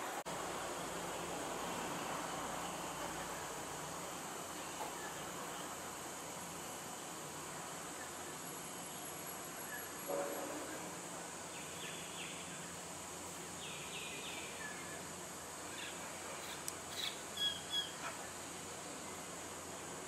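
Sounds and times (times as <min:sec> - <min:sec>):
high insect hum: 0:00.0 - 0:20.0
bird chirps: 0:16.9 - 0:18.1.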